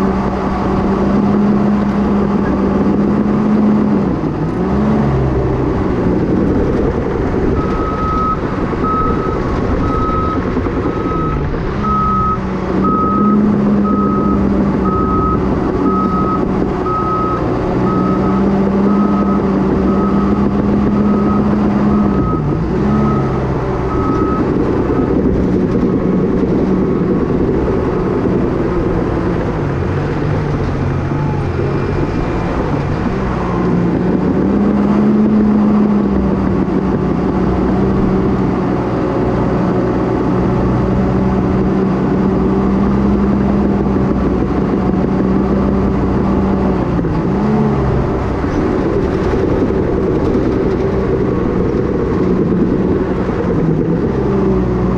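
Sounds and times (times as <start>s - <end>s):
diesel engine running: 0.0s - 54.9s
reversing alarm beeping: 7.6s - 25.1s.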